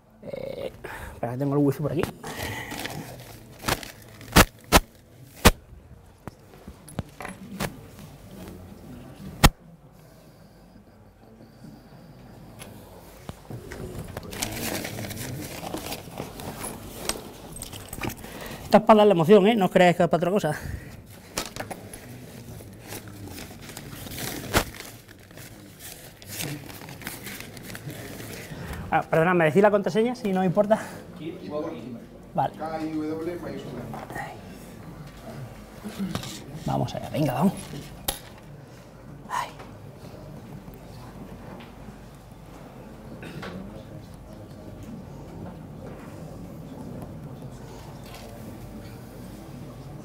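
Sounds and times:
faint room noise: 0.0s - 50.0s
objects clicking and knocking: 15.9s - 18.2s.

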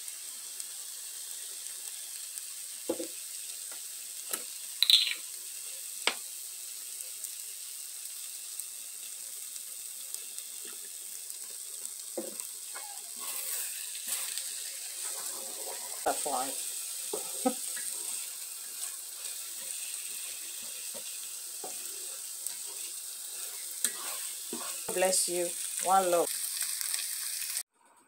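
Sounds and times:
paste sizzling in oil: 0.0s - 27.7s
utensil scraping a pan: 12.8s - 14.4s, 17.1s - 25.1s.

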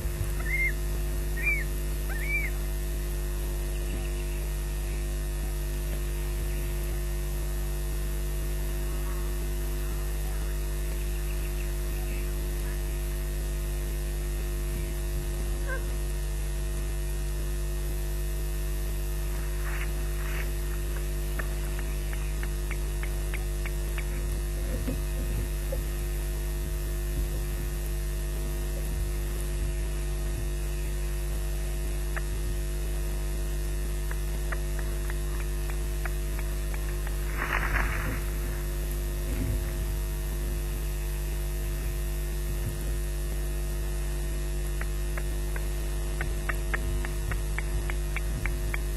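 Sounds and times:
noisy bursts: 0.0s - 4.6s, 16.6s - 48.9s
electrical mains hum: 0.0s - 48.9s
faint clicks: 19.6s - 24.3s.

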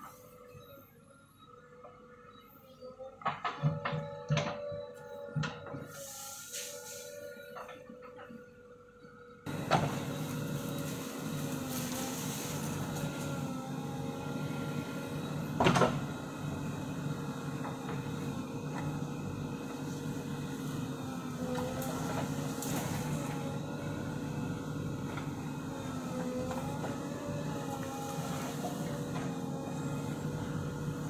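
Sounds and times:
backhoe diesel engine under load: 3.2s - 31.0s.

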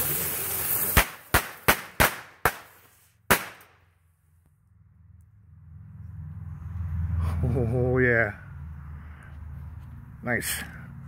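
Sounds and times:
firework spinning hiss: 0.0s - 3.2s
firecracker bangs: 0.9s - 3.8s.

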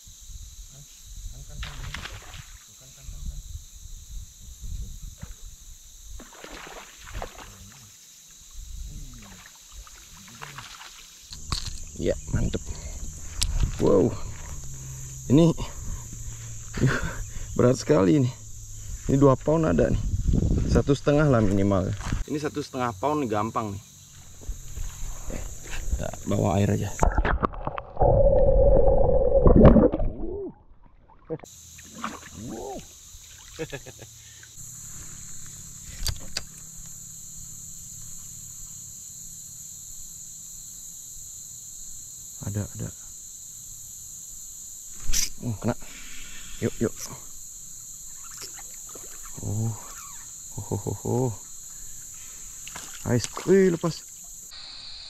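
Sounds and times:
wind rumble on microphone: 3.1s - 5.7s, 12.1s - 14.7s, 18.5s - 22.2s
fish splashing at water surface: 6.2s - 7.6s
muffled underwater creek rushing: 27.0s - 31.4s
rising and falling tone: 27.5s - 30.7s.

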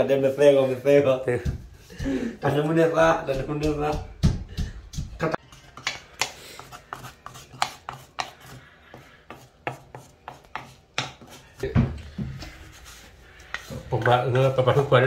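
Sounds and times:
wooden spatula scraping stone mortar: 4.8s - 11.7s, 12.4s - 15.0s.

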